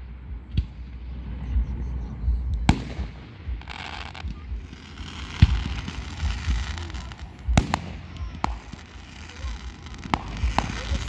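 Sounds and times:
crackling hiss: 0.0s - 11.0s
fireworks bangs: 0.0s - 11.0s
small firework cracks: 2.6s - 11.0s.

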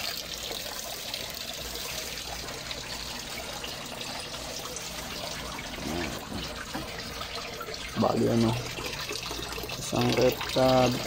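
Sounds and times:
water pouring into tank: 0.0s - 11.0s.

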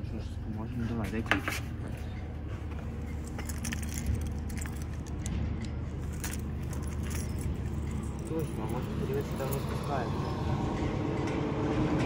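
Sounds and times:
steady low rumble: 0.0s - 12.0s
wrench clinking on metal: 3.1s - 9.7s.

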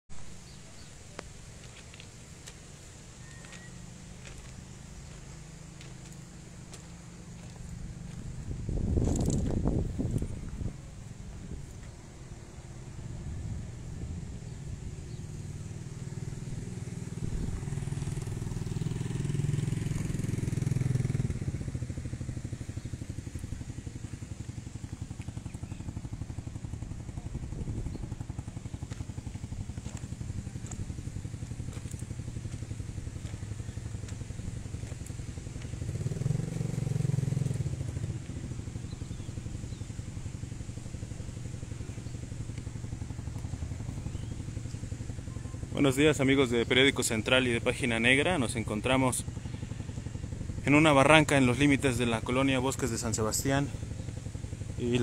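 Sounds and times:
motorcycle engine idling: 0.2s - 55.0s
motorcycle engine revving: 0.3s - 55.0s.

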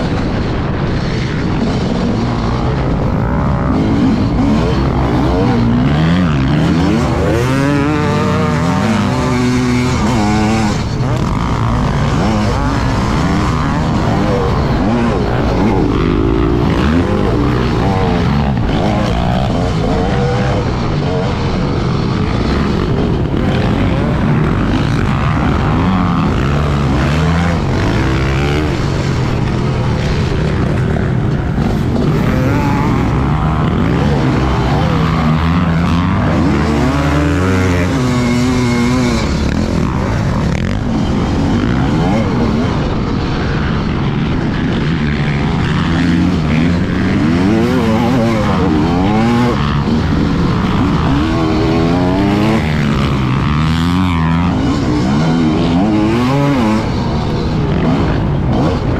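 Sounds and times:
motocross bike engine revving: 0.0s - 58.9s.

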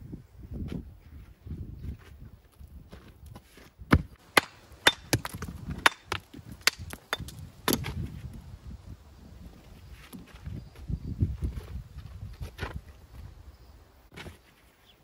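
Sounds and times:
hammer striking stone: 4.4s - 7.8s.

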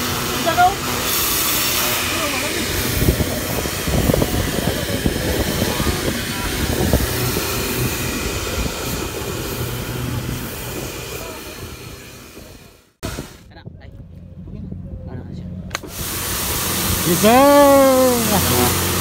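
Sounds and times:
wind buffeting microphone: 2.4s - 17.0s.

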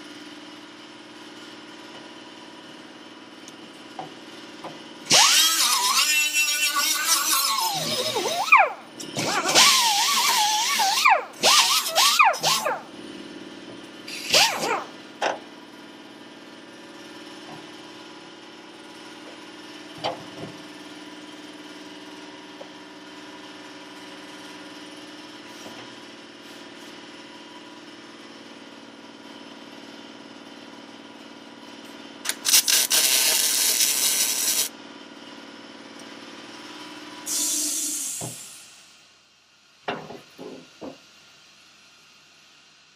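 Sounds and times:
shop machinery hum: 0.0s - 42.9s
crackling mig welding: 32.2s - 34.7s.

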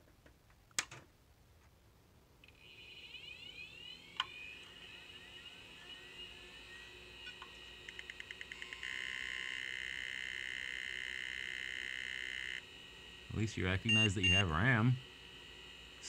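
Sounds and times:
computer speaker beeps: 13.3s - 15.0s.

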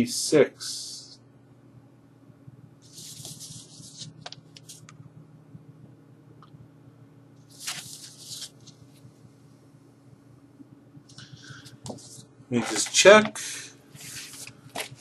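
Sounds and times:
cardboard sleeve rustling: 2.9s - 4.8s, 7.5s - 8.8s, 14.0s - 15.0s.

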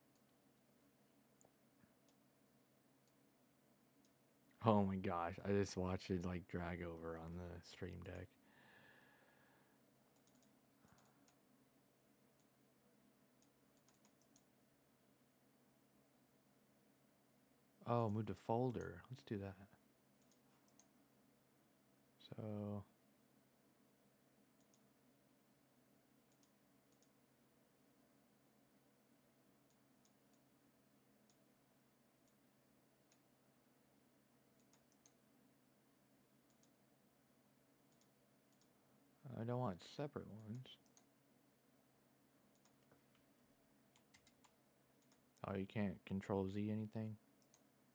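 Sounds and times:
faint low hum: 0.0s - 47.9s
computer mouse clicks: 10.1s - 11.4s, 13.4s - 14.5s, 20.2s - 20.9s, 24.6s - 24.9s, 26.3s - 27.2s, 34.6s - 35.2s, 36.5s - 36.8s, 37.9s - 38.8s, 40.4s - 41.1s, 42.5s - 45.2s, 47.4s - 47.7s.

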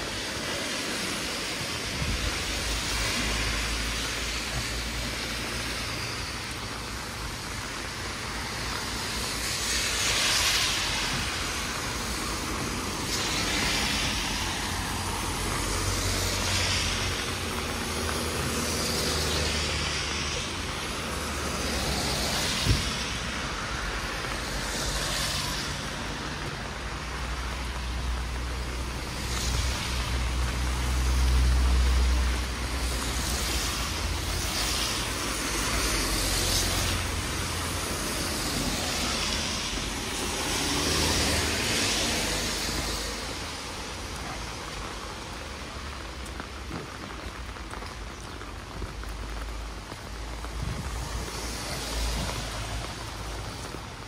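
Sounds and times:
tyres hissing on wet road: 0.0s - 54.0s.

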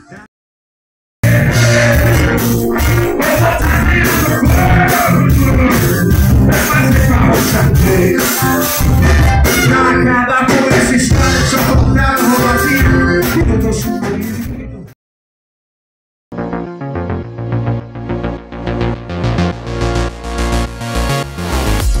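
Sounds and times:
electric guitars: 1.2s - 14.6s
drum kit: 1.2s - 14.7s, 18.5s - 22.0s
person singing: 1.2s - 14.9s.

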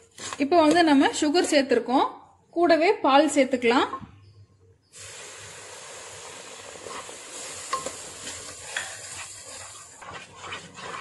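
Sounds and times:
milk sizzling in a hot pan: 4.9s - 11.0s
wooden spatula scraping a pan: 6.8s - 11.0s.

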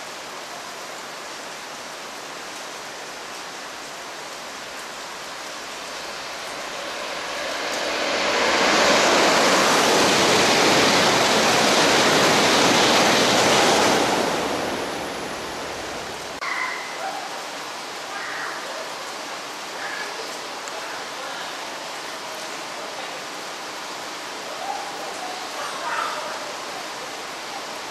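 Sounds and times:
rain hissing: 0.0s - 27.9s
train passing at speed: 5.3s - 16.4s.

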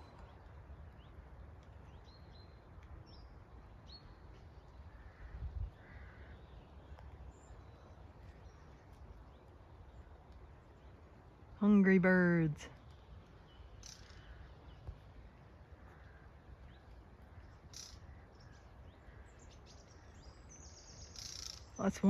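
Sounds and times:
wind on microphone: 5.0s - 6.0s.

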